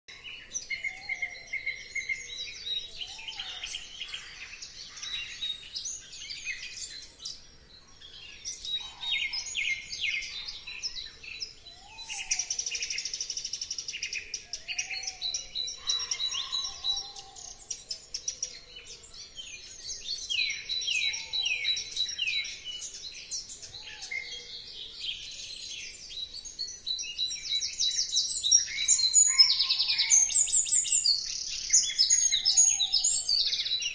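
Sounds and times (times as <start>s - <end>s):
birds chirping and trilling: 0.1s - 33.9s
rising-and-falling bird call: 11.7s - 13.2s, 14.2s - 17.7s, 28.9s - 30.5s.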